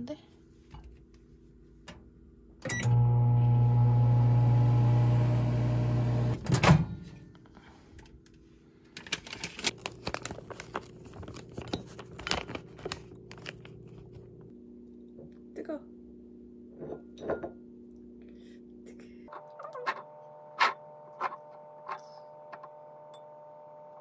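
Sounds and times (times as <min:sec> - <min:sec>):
microwave oven humming: 0:02.6 - 0:07.0, 0:19.4 - 0:24.0.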